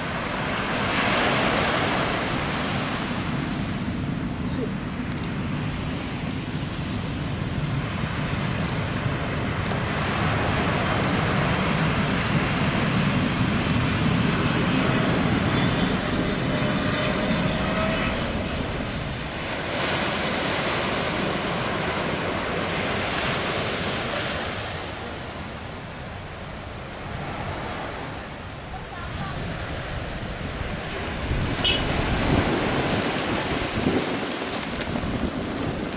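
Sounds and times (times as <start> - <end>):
distant airliner on approach: 0.0 - 35.9
jet engines of landing airliner: 0.0 - 35.9
faint rising engine whine: 12.9 - 19.8
wind on microphone: 26.8 - 35.9.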